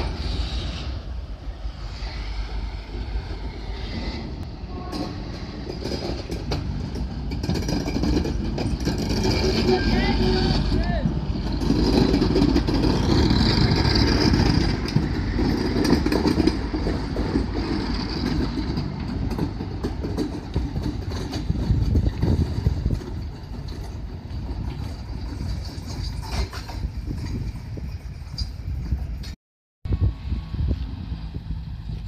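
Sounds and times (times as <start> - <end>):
diesel locomotive engine passing: 0.0 - 26.2, 29.9 - 32.0.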